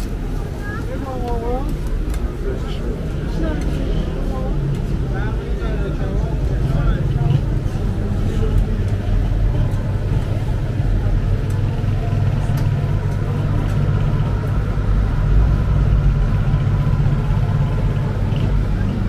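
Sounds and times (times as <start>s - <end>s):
cars passing and idling: 0.0s - 19.0s
city traffic rumble: 0.0s - 19.0s.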